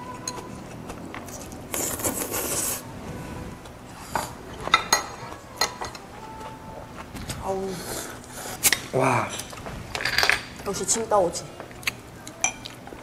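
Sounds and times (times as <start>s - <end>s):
utensils clinking and scraping dishes: 8.6s - 11.0s.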